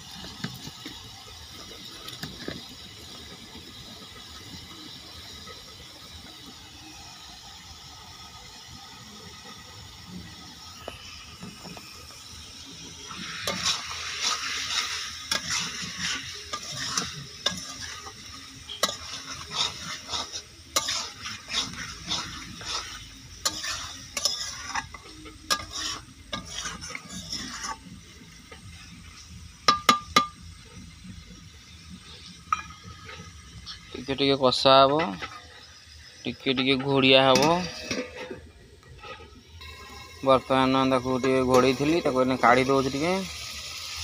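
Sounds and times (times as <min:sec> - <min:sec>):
food sizzling: 0:00.0 - 0:44.0
metal spatula stirring and scraping: 0:12.5 - 0:30.9, 0:31.8 - 0:43.1.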